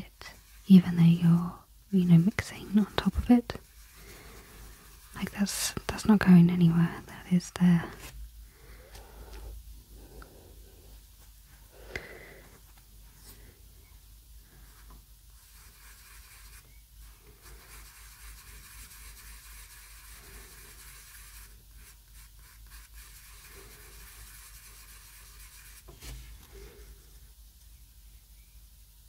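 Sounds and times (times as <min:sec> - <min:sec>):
pastel scratching on paper: 0:00.0 - 0:07.2, 0:14.7 - 0:26.8.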